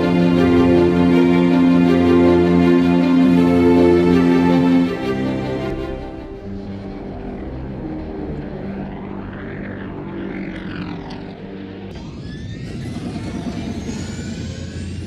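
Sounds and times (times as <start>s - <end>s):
held music notes: 0.0s - 11.9s
engine rumble with rising whines: 0.0s - 15.0s
spaceship engine passing: 0.0s - 15.0s.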